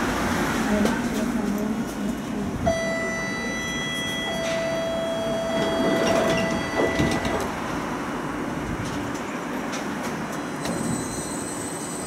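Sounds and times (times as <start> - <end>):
tram hum: 0.0 - 12.0
door warning beep: 2.7 - 7.6
knocks from tram doors: 5.6 - 7.6.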